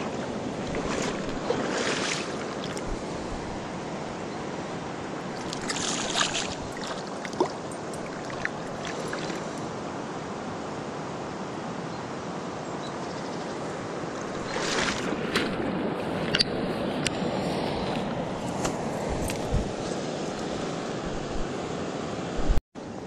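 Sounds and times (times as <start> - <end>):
water sloshing around boots: 0.0 - 3.6, 5.2 - 9.7, 14.2 - 17.0
water splashes: 0.0 - 3.8, 5.0 - 9.7, 14.1 - 16.4
rushing water: 0.0 - 12.9, 13.5 - 22.6.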